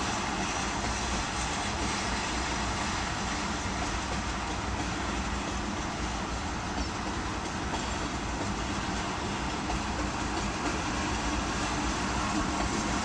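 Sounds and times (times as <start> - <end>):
freight train wheels on rails: 0.0 - 13.0.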